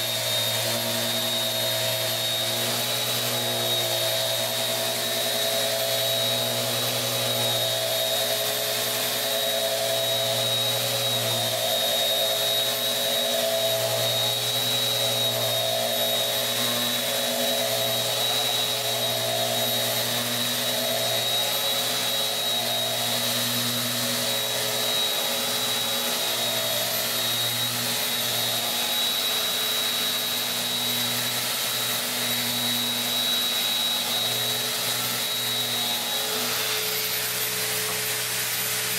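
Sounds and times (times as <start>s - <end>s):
electric sander running: 0.0s - 38.9s.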